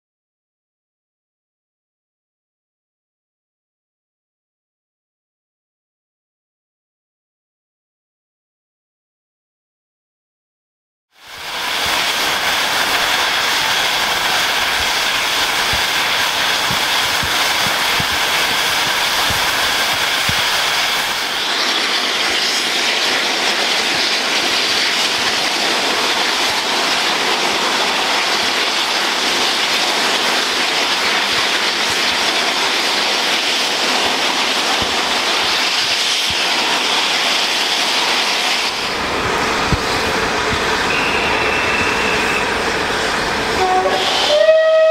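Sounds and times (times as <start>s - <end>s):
steam locomotive hissing steam: 11.2s - 44.9s.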